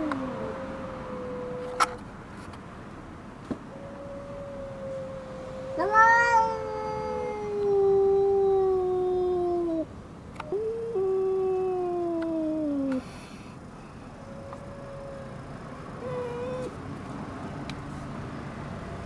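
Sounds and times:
cat yowling: 0:03.8 - 0:09.9, 0:16.0 - 0:16.8.

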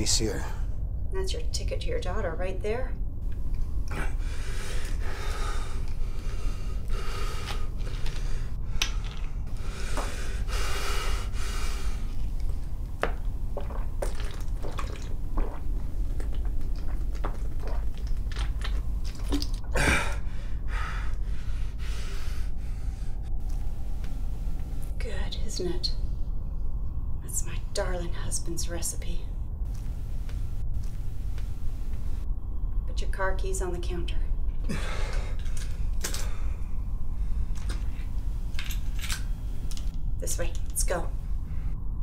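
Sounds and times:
low rumble: 0:00.0 - 0:42.0
man gulping a drink: 0:12.4 - 0:20.2
heavy breaths and gasps: 0:19.6 - 0:23.2, 0:34.6 - 0:38.1.

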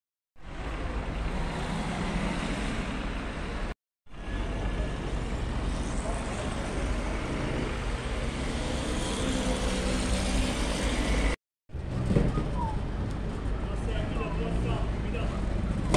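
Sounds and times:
low rumble of cars: 0:00.4 - 0:15.9.

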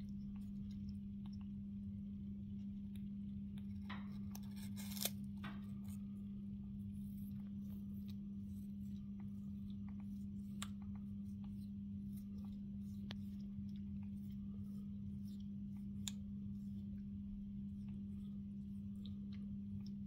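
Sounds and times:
steady low hum: 0:00.0 - 0:20.0
parrot beak crunching apple: 0:03.6 - 0:06.0.

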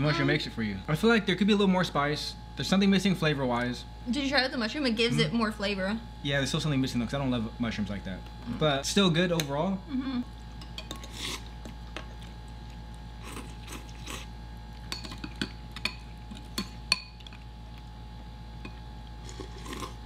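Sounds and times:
noodle slurps: 0:13.2 - 0:14.3
cutlery clinking on ceramic bowls: 0:14.9 - 0:17.4.

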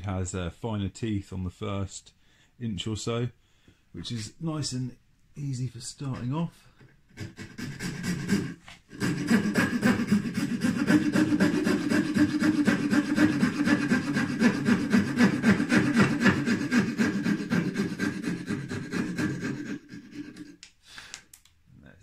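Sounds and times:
saw cutting wood: 0:07.1 - 0:20.6.

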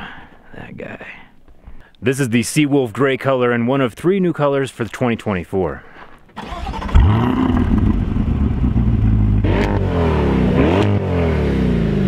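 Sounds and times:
car engine starting and idling: 0:06.4 - 0:11.0
engine revving loudly: 0:06.4 - 0:12.0.

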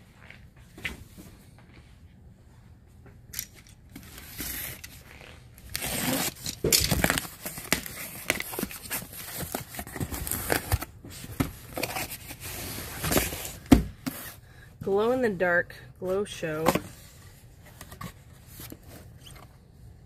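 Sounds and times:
packaging tearing and crinkling: 0:04.1 - 0:10.9.

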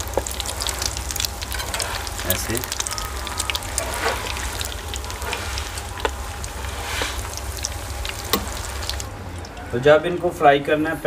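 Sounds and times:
kebabs sizzling in hot oil: 0:00.0 - 0:11.0
oil spattering pops: 0:08.0 - 0:09.6.

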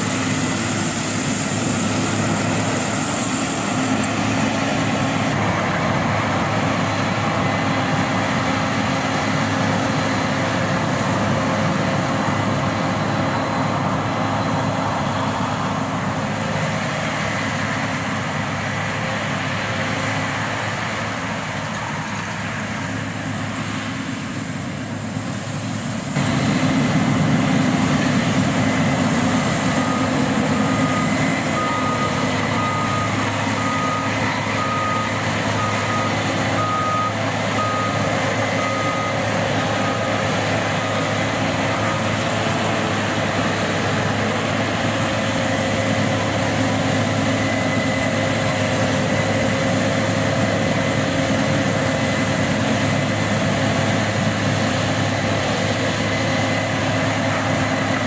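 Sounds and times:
harvester engine running: 0:00.0 - 0:58.0
reverse alarm beeping: 0:29.6 - 0:42.2.

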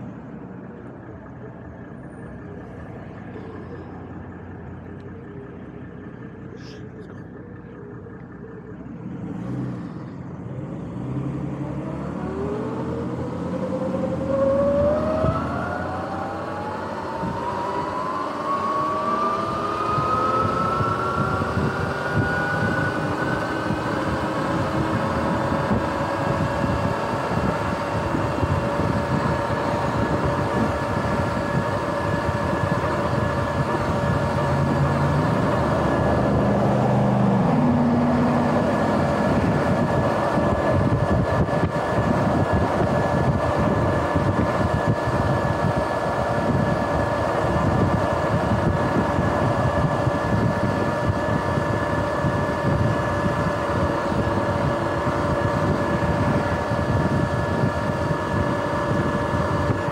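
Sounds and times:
electric motor whining: 0:11.9 - 0:59.9
wind noise: 0:12.2 - 0:59.9.

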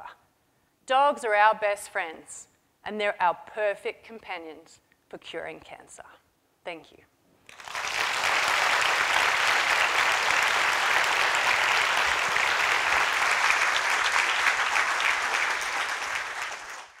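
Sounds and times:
audience applauding: 0:07.5 - 0:17.0.

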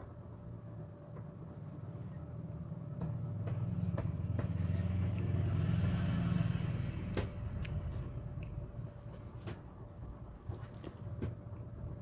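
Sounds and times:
motor vehicle passing: 0:02.7 - 0:08.8.

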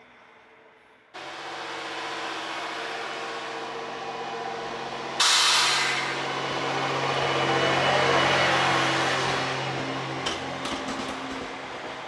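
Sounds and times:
diesel railcar engine idling: 0:01.2 - 0:12.0
air hiss: 0:05.2 - 0:06.2.

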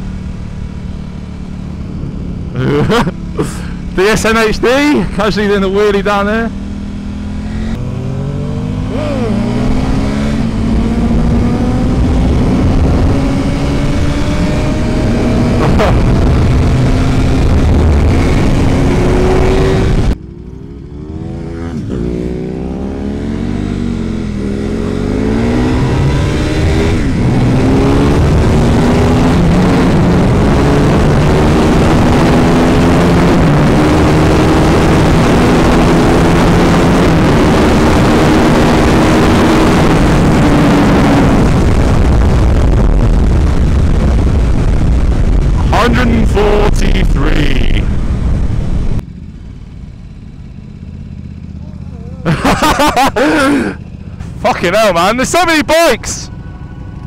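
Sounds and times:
motorcycle engines passing: 0:00.0 - 0:42.2, 0:44.6 - 0:57.0
motorcycle engine shifting gears: 0:06.5 - 0:46.6
wind noise: 0:06.8 - 0:20.2, 0:23.0 - 0:49.0.

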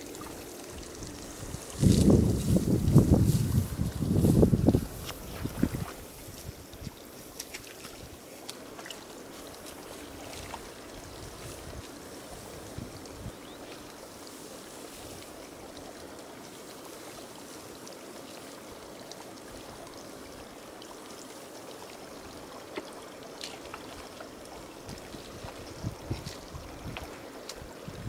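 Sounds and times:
running water rushing: 0:00.0 - 0:28.0
footsteps rustling through stubble: 0:00.1 - 0:15.6, 0:23.4 - 0:28.0.

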